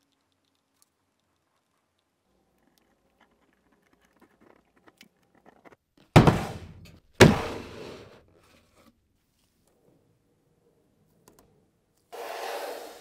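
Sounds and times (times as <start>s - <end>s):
loud sudden thumps: 6.2s - 7.8s
faint clicks: 11.1s - 12.1s.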